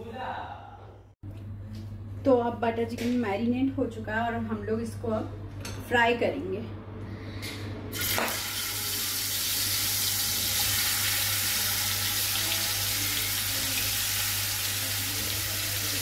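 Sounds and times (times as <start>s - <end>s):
chicken sizzling in hot oil: 8.0s - 16.0s.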